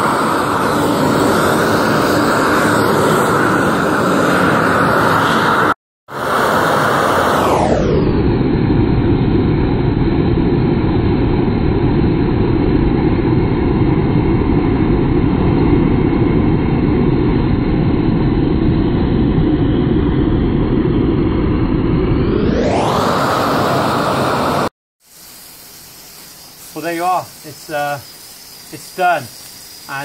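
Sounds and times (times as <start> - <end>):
gas burner torch rushing: 0.0 - 8.2, 20.8 - 30.0.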